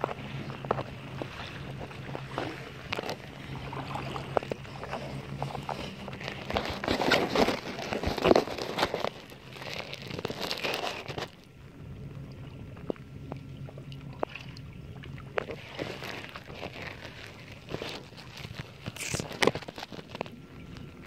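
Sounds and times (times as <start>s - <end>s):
knocks and rubbing on hull: 0.0s - 9.3s
water sloshing against kayak hull: 0.0s - 21.0s.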